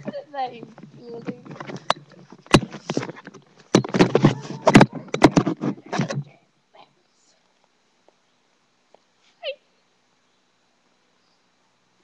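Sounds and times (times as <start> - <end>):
clothing rustling: 0.0 - 6.3
microphone handling knocks: 0.0 - 6.4.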